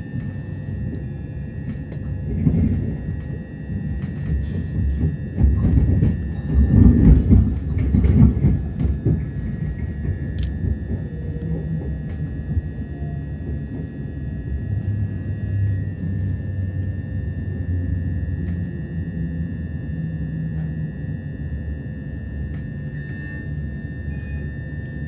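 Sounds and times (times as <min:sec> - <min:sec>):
train wheels rumbling on rail: 0:00.0 - 0:21.1
faint high whine: 0:08.7 - 0:25.0.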